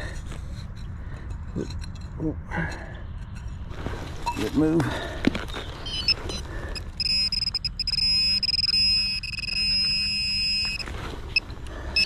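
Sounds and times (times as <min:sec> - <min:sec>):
metal detector buzzing tone: 0:05.9 - 0:10.9.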